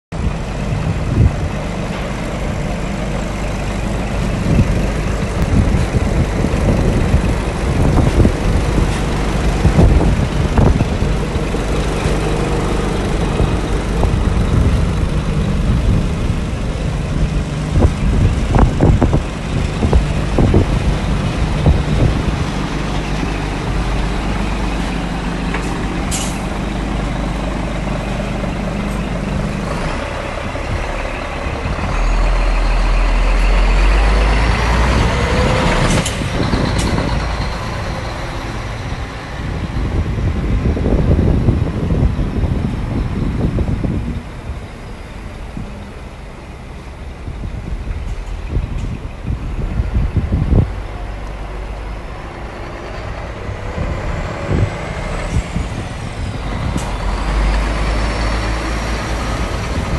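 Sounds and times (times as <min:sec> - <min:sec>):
diesel truck engine idling: 0:00.1 - 0:59.9.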